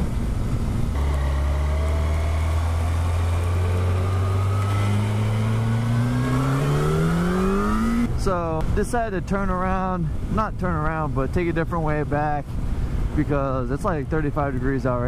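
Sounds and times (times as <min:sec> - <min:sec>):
motorcycle engine accelerating: 0:00.0 - 0:08.2.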